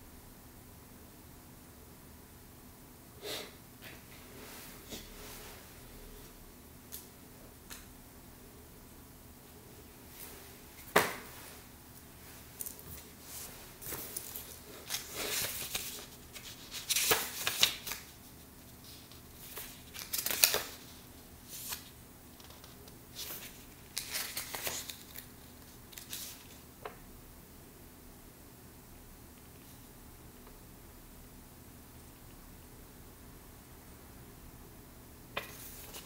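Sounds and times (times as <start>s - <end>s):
paper rustling and crinkling: 12.4s - 26.6s, 35.4s - 36.0s.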